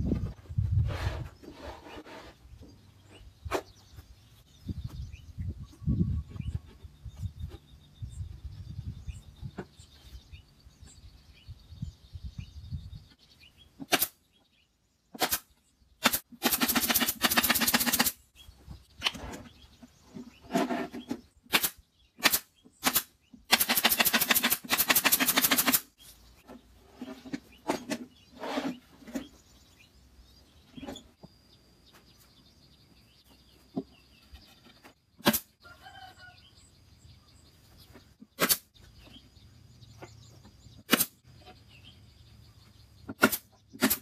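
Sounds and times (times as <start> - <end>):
power fastening tool clicks and rattles: 16.0 - 18.2, 21.6 - 25.9.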